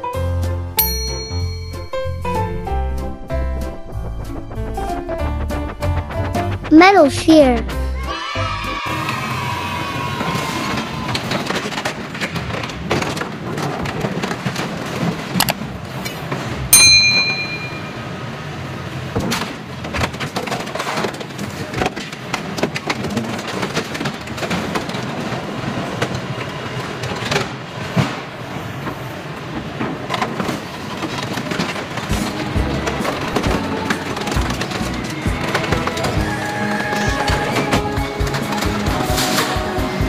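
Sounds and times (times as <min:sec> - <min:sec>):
loud ringing metal clang: 0:16.8 - 0:18.0.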